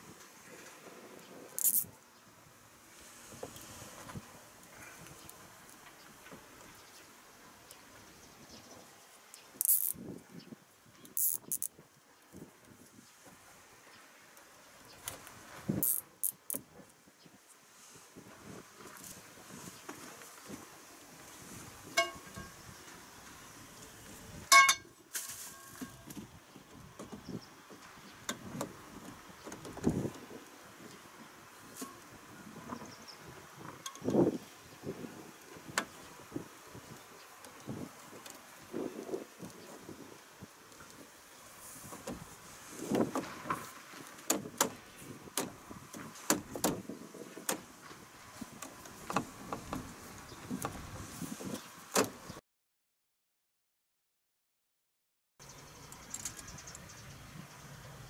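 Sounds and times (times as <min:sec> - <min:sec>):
scraping rustle: 0:02.8 - 0:07.2, 0:25.1 - 0:40.2, 0:40.8 - 0:52.4
metal pipe ringing clink: 0:22.0 - 0:22.6, 0:24.5 - 0:24.9.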